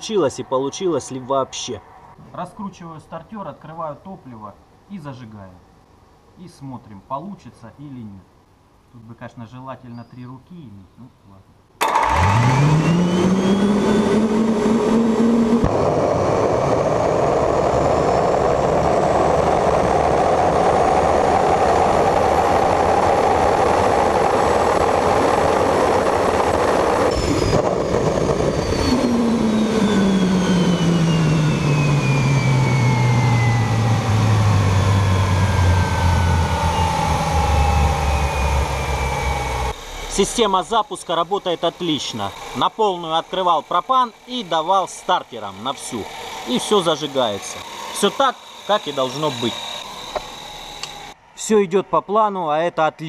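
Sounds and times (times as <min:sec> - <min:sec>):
turbine starter whine: 0:11.8 - 0:51.5
turbine combustion roar: 0:11.8 - 0:52.0.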